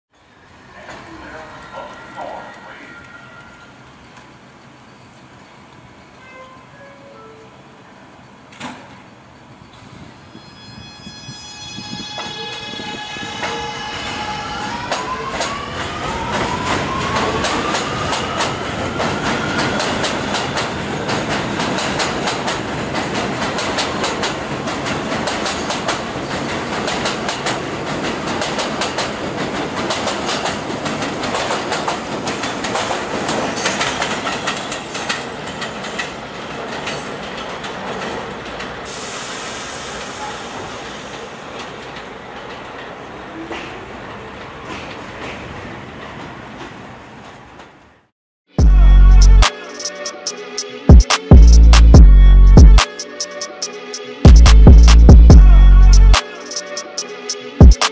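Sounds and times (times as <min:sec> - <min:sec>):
subway train propulsion whine: 0:00.2 - 0:48.1
train wheels clacking over rail joints: 0:19.1 - 0:38.7.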